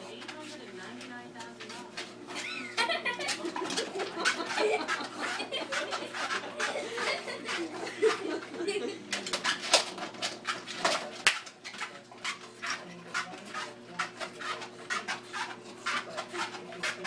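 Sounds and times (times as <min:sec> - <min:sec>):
treadmill motor humming: 0:00.0 - 0:17.0
dog panting and snorting: 0:03.3 - 0:11.0, 0:11.7 - 0:17.0.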